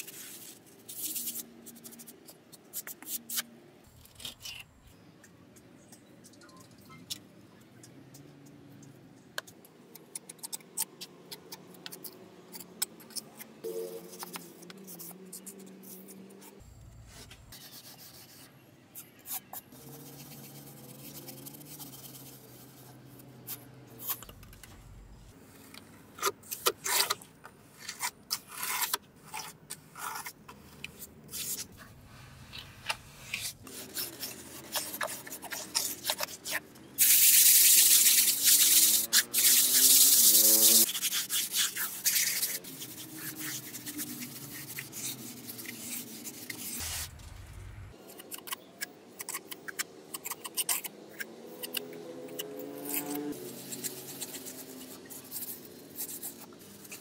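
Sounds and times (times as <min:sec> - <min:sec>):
trowel scraping mortar: 0:26.2 - 0:31.9, 0:32.5 - 0:47.2, 0:52.6 - 0:57.0.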